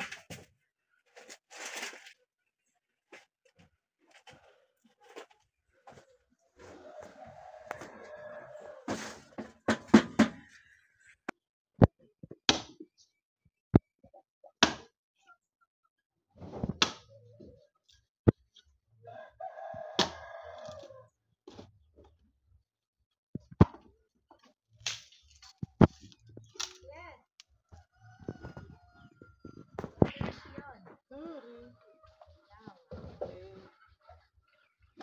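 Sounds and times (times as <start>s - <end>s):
rooster crowing: 6.6s - 9.4s, 19.1s - 21.0s
axe chopping into log: 14.6s - 14.9s.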